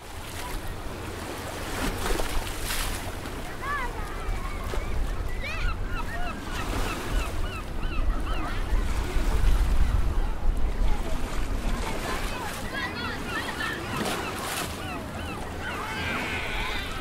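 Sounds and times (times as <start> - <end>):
surf washing: 0.0 - 17.0
wind buffeting microphone: 7.1 - 12.6
high bird calls: 12.7 - 17.0.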